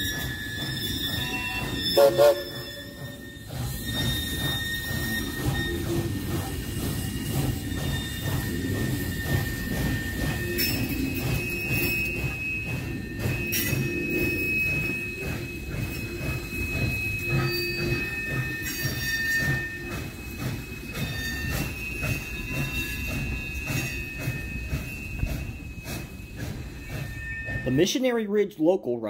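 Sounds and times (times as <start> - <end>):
rumble of wheels on track: 0.0 - 28.2
train wheel squeal: 0.0 - 29.0.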